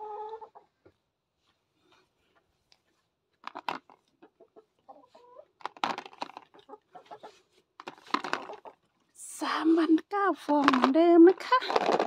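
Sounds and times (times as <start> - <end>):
chickens clucking: 0.0 - 0.8, 4.2 - 5.6, 6.5 - 7.6.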